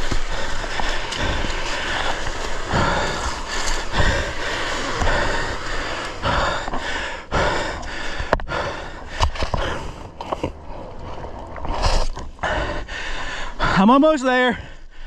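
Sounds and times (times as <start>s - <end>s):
person panting: 0.0s - 10.1s, 12.4s - 13.9s.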